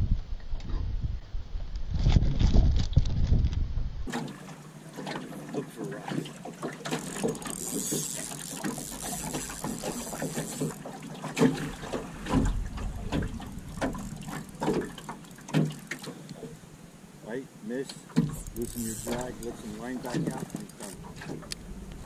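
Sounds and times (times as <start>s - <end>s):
wind rumble on microphone: 0.0s - 4.1s, 11.8s - 14.4s
knocks and clatter in metal boat: 5.0s - 16.5s, 18.1s - 21.6s
fishing reel being cranked: 6.9s - 10.9s, 18.3s - 21.1s.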